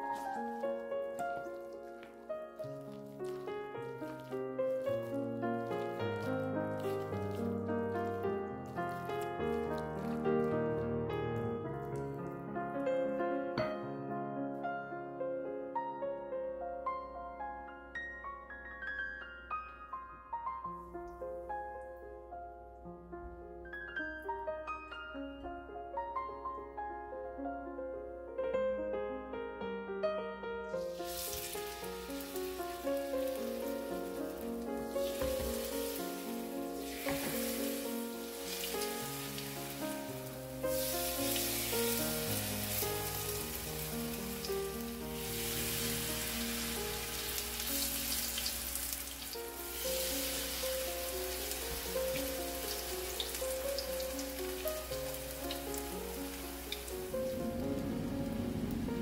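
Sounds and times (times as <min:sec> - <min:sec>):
background music: 0:00.0 - 0:22.8, 0:30.0 - 0:59.0
gentle piano melody: 0:00.0 - 0:59.0
fritters sizzling in oil: 0:30.8 - 0:57.1.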